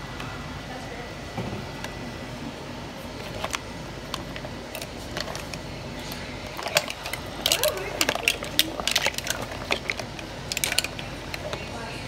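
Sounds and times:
steady hum: 0:00.0 - 0:12.0
shells clicking in metal pot: 0:06.6 - 0:11.6.

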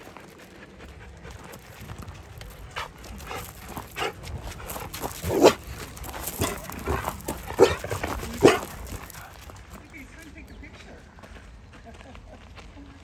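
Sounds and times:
dog barking: 0:05.2 - 0:05.6, 0:07.5 - 0:08.8.

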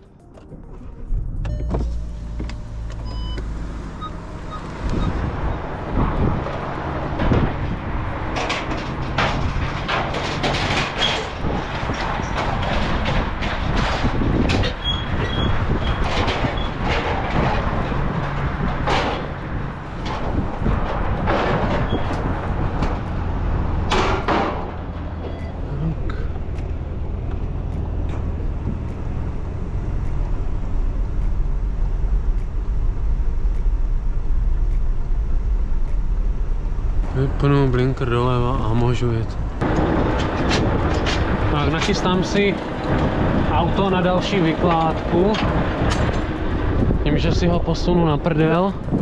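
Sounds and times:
metallic knocks and rattles: 0:05.2 - 0:25.6, 0:39.5 - 0:47.1.

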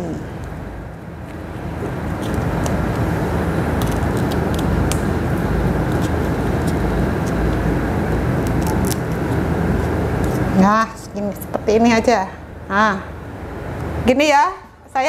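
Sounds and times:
steady rumbling noise: 0:00.0 - 0:15.0
banana leaf crackling: 0:01.3 - 0:10.6.

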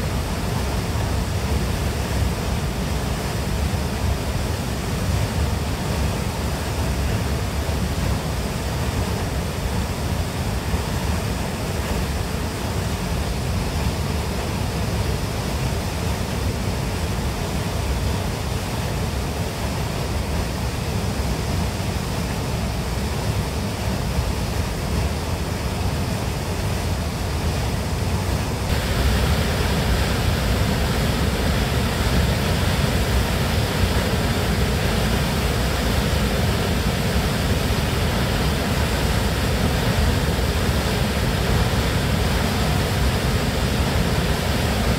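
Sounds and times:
waterfall roaring: 0:00.0 - 0:44.9.

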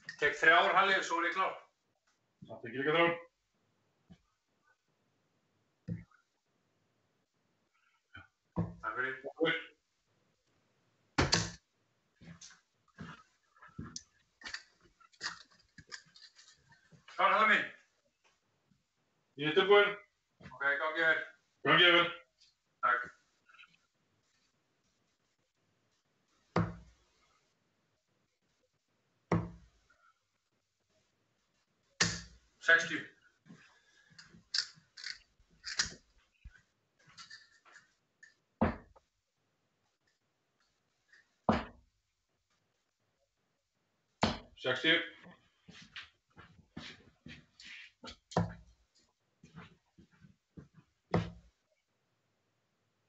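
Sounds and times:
darts knocking and clicking: 0:11.2 - 0:11.6, 0:26.6 - 0:26.9, 0:29.3 - 0:29.7, 0:32.0 - 0:32.4, 0:48.0 - 0:48.7, 0:51.2 - 0:51.5
dart thudding into board: 0:26.6 - 0:26.9.

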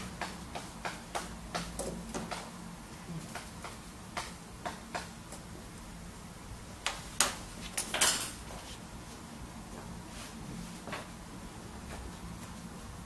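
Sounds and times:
chalk tapping on chalkboard: 0:00.0 - 0:02.5, 0:03.3 - 0:05.1.

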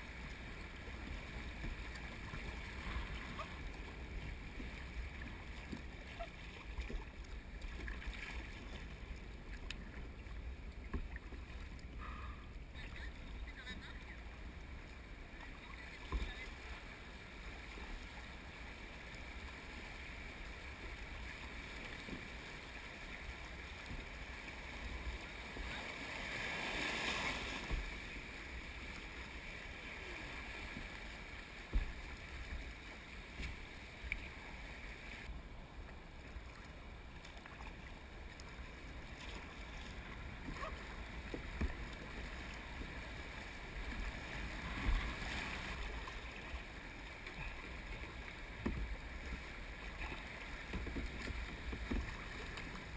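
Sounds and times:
river water rushing and splashing: 0:00.0 - 0:11.9, 0:12.7 - 0:52.9
paddle knocks and splashes: 0:00.8 - 0:12.1, 0:15.5 - 0:16.7, 0:23.5 - 0:28.2, 0:30.6 - 0:32.7, 0:37.2 - 0:52.9.

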